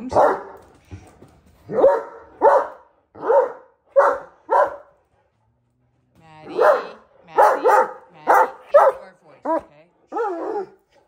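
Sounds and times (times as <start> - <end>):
large dog barking: 0.0 - 0.8, 1.6 - 5.1, 6.4 - 11.0.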